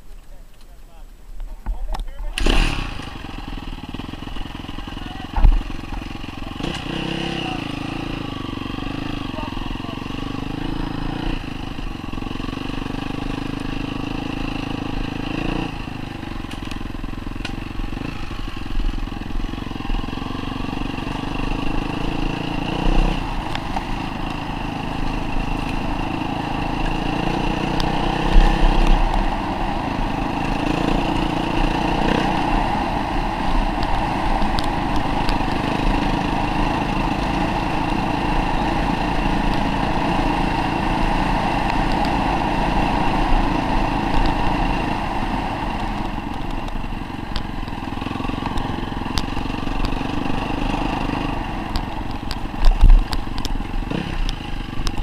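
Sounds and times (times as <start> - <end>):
dirt bike engine running: 1.6 - 55.0.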